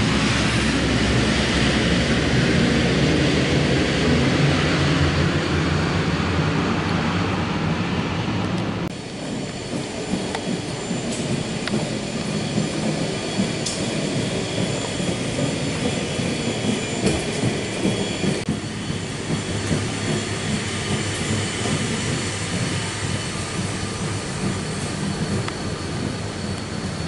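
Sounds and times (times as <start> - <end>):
train wheels rumbling on track: 0.0 - 27.0.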